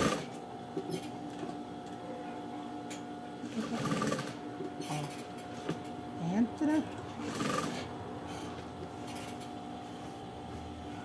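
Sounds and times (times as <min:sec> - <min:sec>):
sewing machine running: 0:00.0 - 0:00.4, 0:03.5 - 0:04.4, 0:07.2 - 0:07.9.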